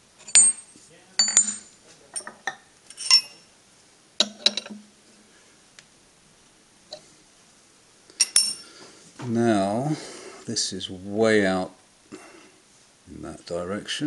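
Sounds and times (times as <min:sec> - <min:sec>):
metal tools clinking on machine table: 0:00.2 - 0:03.5, 0:04.2 - 0:04.8, 0:08.2 - 0:08.7.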